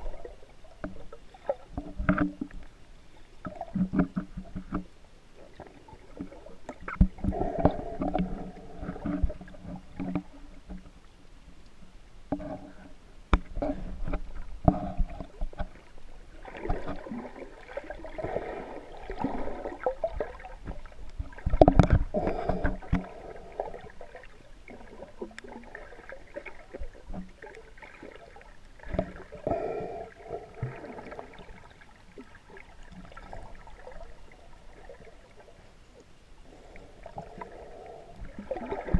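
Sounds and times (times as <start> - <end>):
underwater gurgling rushes: 5.4 - 10.2, 13.6 - 35.7, 36.5 - 38.9.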